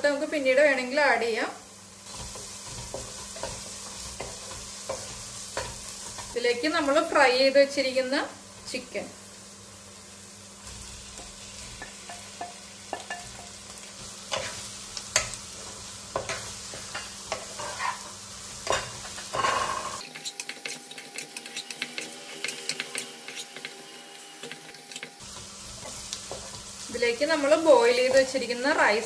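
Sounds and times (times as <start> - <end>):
pan sizzling: 0.0 - 29.0
wooden spatula scraping pan: 16.2 - 18.1, 18.7 - 23.8
spoon knocking and scraping: 18.6 - 25.2.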